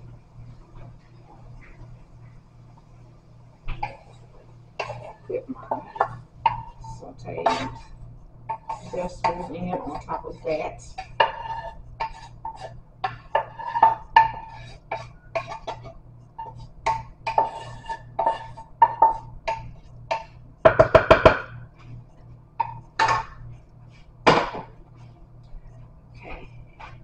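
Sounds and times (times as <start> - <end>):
spoon knocking and scraping a pan: 3.7 - 22.0, 22.6 - 25.2.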